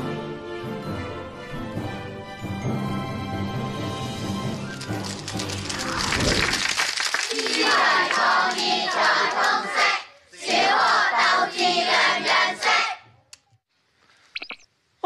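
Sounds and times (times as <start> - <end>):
children chanting in unison: 7.3 - 13.0.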